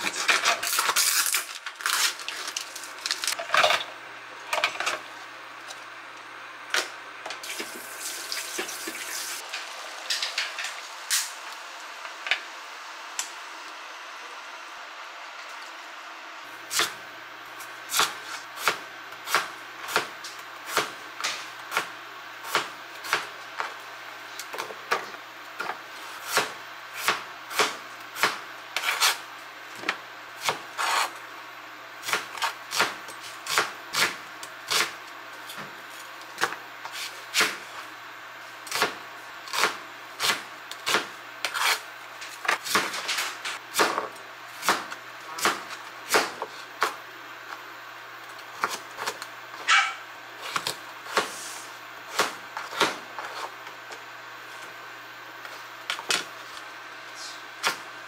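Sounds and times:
knife chopping on cutting board: 43.7 - 47.0.

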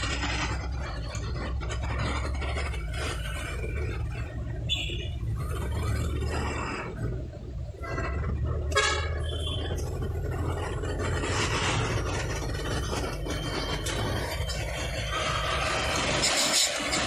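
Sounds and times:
vehicle engine rumbling: 0.0 - 17.0
car horn tooting: 4.7 - 5.2, 8.7 - 9.7.

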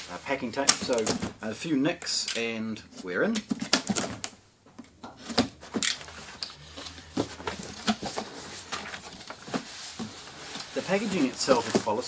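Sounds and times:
packing knocks and rustles: 0.7 - 1.4, 3.4 - 4.3, 5.0 - 12.0
cardboard box being opened: 5.2 - 12.0.

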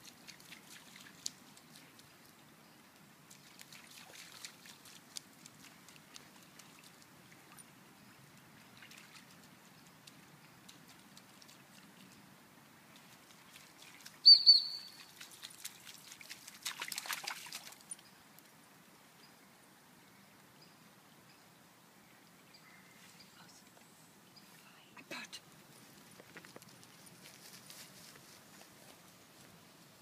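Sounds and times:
dog splashing through water: 0.0 - 2.0, 3.4 - 7.0, 14.8 - 18.0
dog whistle pips: 14.2 - 15.0.

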